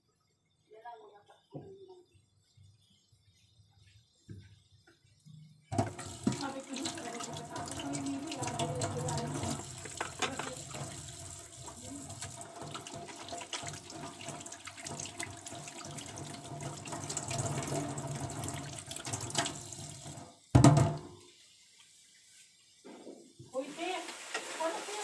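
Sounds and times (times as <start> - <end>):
dish washing clatter: 5.7 - 21.2
tap running into sink: 5.7 - 21.2.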